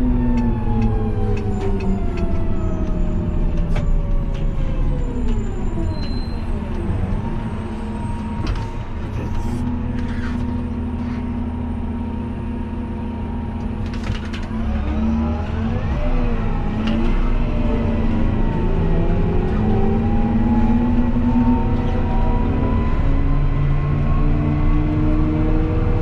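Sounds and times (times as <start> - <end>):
tractor diesel engine: 0.0 - 26.0.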